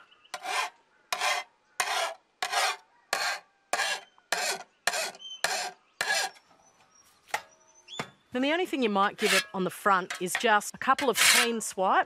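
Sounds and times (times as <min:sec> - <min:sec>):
file rasping on steel: 0:00.4 - 0:06.4, 0:09.2 - 0:09.6, 0:11.0 - 0:11.7.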